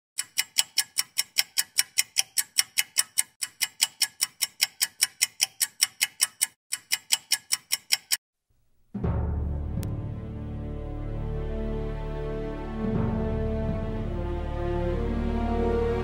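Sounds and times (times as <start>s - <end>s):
rapid clock ticking: 0.2s - 8.2s.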